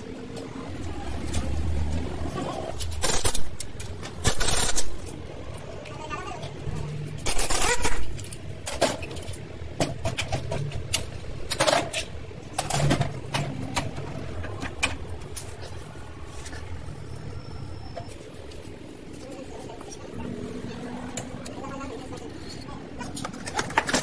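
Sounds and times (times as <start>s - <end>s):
metal parts clinking and knocking: 2.8s - 5.2s, 7.2s - 14.6s.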